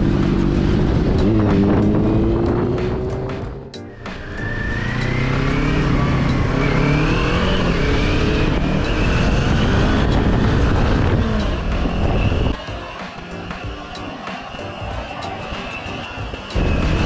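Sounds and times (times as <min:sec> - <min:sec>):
vehicle engine accelerating: 0:00.0 - 0:12.6, 0:14.0 - 0:17.0
wind and road noise: 0:00.0 - 0:12.7, 0:13.5 - 0:17.0.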